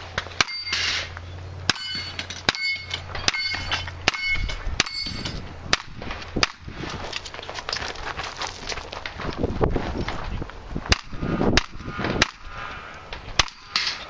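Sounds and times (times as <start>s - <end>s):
steel targets ringing: 0.0s - 5.6s, 13.4s - 14.0s.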